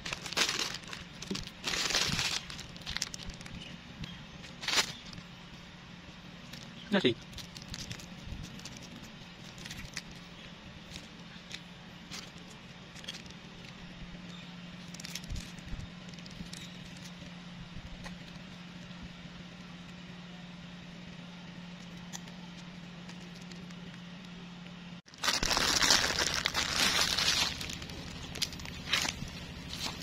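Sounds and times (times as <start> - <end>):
plastic wrapper crinkling: 0.0 - 3.7, 4.5 - 5.2, 6.5 - 13.8, 14.8 - 17.1, 25.1 - 30.0
faint low hum: 0.0 - 30.0.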